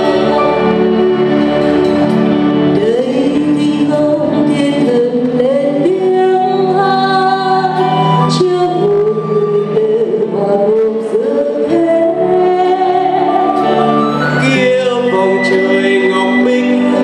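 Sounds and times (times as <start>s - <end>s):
band accompaniment: 0.0s - 17.0s
person singing long sliding notes: 0.0s - 17.0s.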